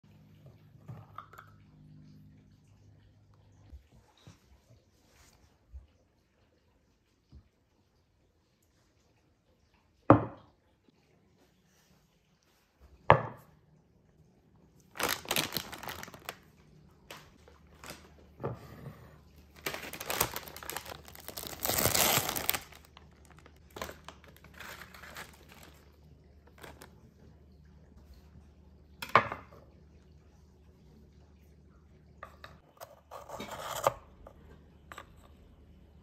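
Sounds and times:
plastic wrapper crinkling and tearing: 14.9s - 18.2s, 19.5s - 26.9s.

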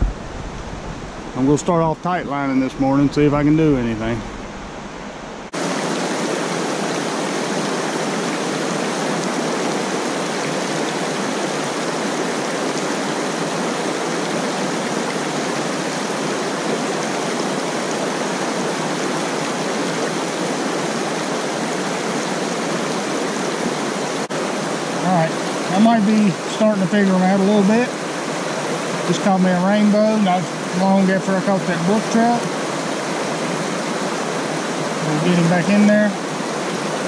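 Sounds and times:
creek rushing over stones: 0.0s - 37.0s.

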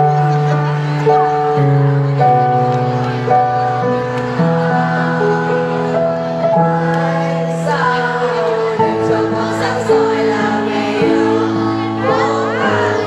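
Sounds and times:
choir singing long notes: 3.8s - 13.0s.

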